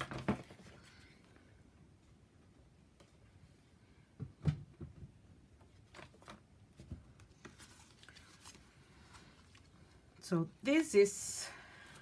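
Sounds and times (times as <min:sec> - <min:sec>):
paper rustling: 0:05.8 - 0:10.0.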